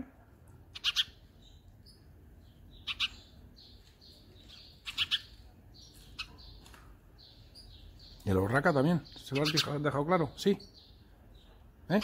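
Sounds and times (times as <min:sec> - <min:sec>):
sparrows chirping: 0:00.0 - 0:12.0
distant sparrow chirping: 0:00.5 - 0:12.0.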